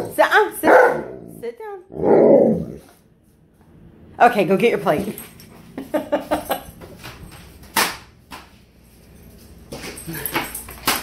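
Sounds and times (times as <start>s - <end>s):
dog claws clicking on tile: 9.7s - 11.0s.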